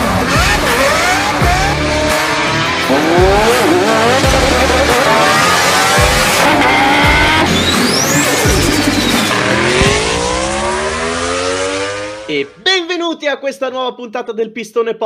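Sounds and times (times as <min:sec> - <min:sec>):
sports car engine accelerating: 0:00.0 - 0:12.6
high whistle: 0:07.2 - 0:09.6.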